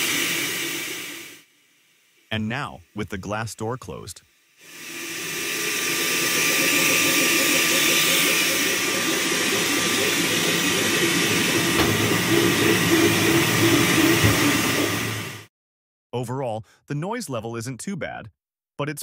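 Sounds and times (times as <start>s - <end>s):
cooling fans rushing: 5.1s - 15.4s
printer motor tones wavering: 5.3s - 15.4s.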